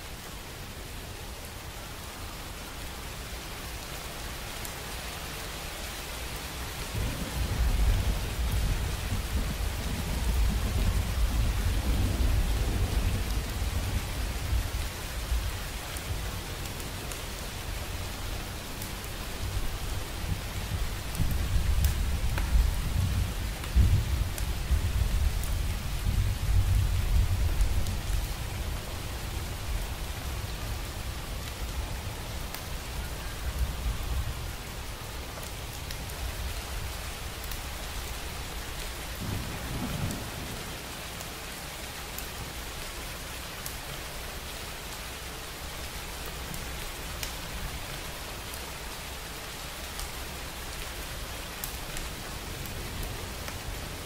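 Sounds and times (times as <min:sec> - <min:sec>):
raindrop ticks: 0:21.1 - 0:22.7, 0:46.2 - 0:48.6, 0:49.8 - 0:50.2.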